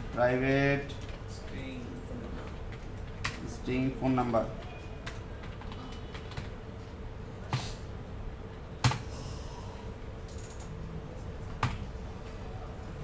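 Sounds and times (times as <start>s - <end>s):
faint steady hum: 0.0s - 13.0s
computer keyboard keystrokes: 4.6s - 6.6s, 10.3s - 10.7s.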